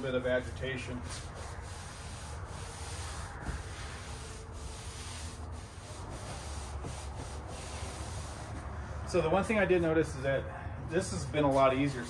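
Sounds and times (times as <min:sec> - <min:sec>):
brush scrubbing wet siding: 0:00.0 - 0:10.1, 0:11.0 - 0:12.0.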